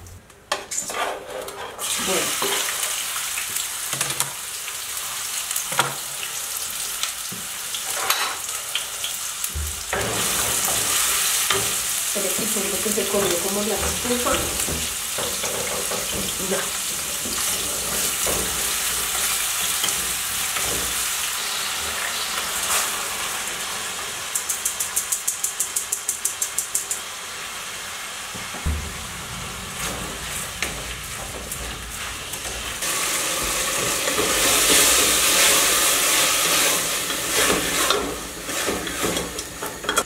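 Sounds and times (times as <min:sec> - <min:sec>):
food sizzling in a pan: 0:01.8 - 0:40.0
thump: 0:28.6 - 0:29.2.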